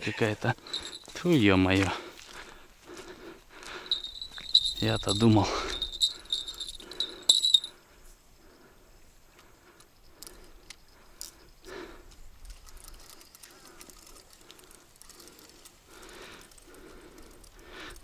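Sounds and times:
faint rustling: 0.6s - 1.3s, 3.6s - 7.8s
soft clicks of gear: 9.3s - 18.0s.

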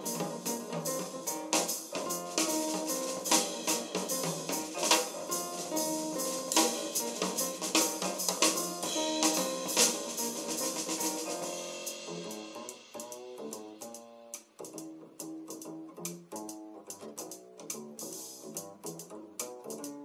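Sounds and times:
music with drums through speakers: 0.0s - 13.3s.

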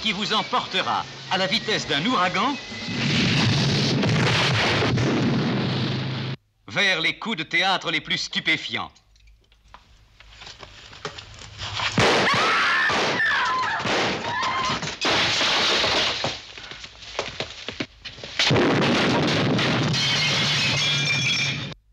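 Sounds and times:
rumble: 1.0s - 6.5s
loud crash: 2.9s - 6.4s.

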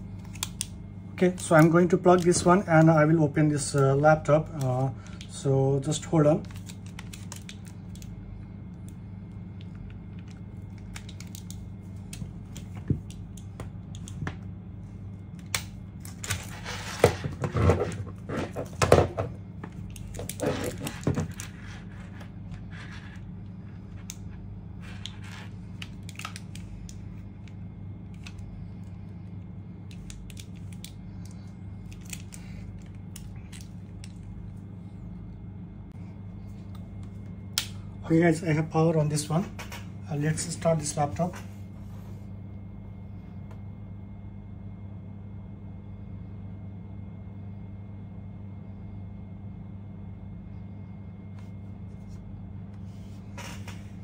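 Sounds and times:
steady low hum: 0.0s - 54.0s
cable rustling and knocking: 16.4s - 21.9s.

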